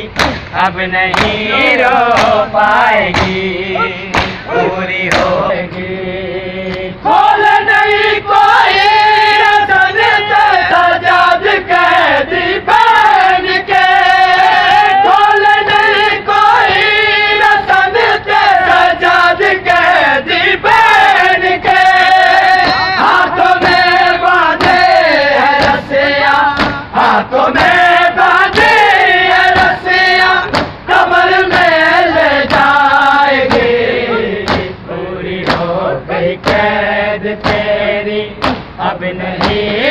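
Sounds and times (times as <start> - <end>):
men singing a lament: 0.0 - 39.9
hands slapping chests: 1.1 - 1.4, 2.2 - 2.4, 4.1 - 4.5, 26.6 - 26.9, 30.5 - 30.8, 34.4 - 34.7, 35.4 - 35.7, 38.4 - 38.7.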